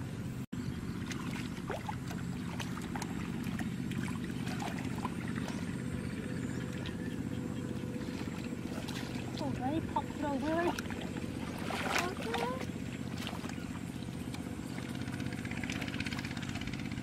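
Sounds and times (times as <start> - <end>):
hands splashing in muddy water: 1.0 - 5.8, 8.0 - 16.7.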